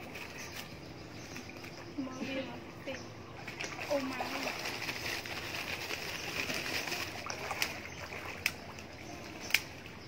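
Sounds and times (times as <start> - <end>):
fish splashing at water surface: 3.4 - 10.0.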